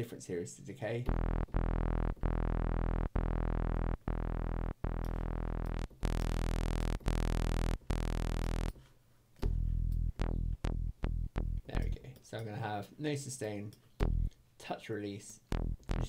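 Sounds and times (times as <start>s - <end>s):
synth bass notes: 1.1s - 8.8s, 9.4s - 12.0s, 14.0s - 14.3s, 15.4s - 16.0s.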